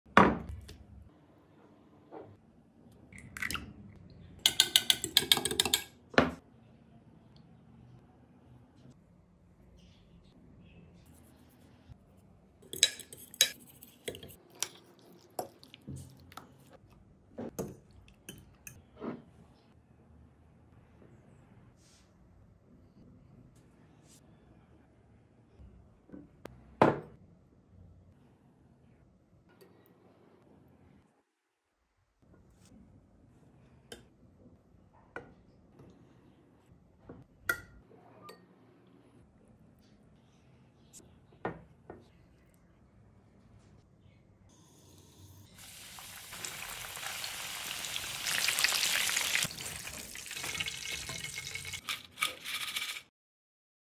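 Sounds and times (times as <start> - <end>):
tongs clinking on glass dish: 49.7 - 53.0.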